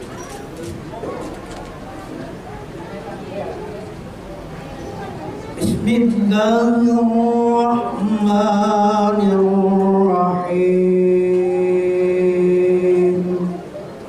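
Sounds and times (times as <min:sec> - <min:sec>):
man chanting into a microphone: 0:05.6 - 0:13.7.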